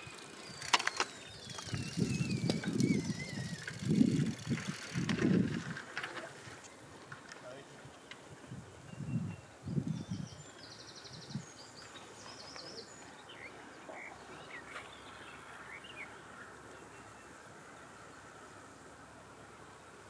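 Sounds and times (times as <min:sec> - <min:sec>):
small birds chirping: 0:00.0 - 0:05.5, 0:06.1 - 0:20.0
wind buffeting microphone: 0:00.0 - 0:06.1, 0:07.7 - 0:11.7
outdoor background noise: 0:00.0 - 0:20.0.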